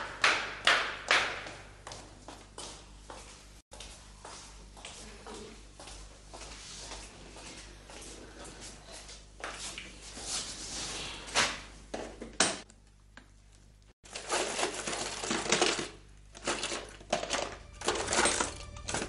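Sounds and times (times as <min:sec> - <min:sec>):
metal chains clinking: 0:17.3 - 0:19.0.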